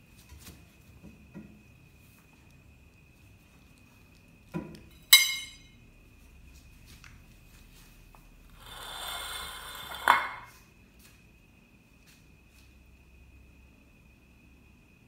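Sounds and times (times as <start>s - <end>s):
sharp ringing knock: 5.1s - 5.7s.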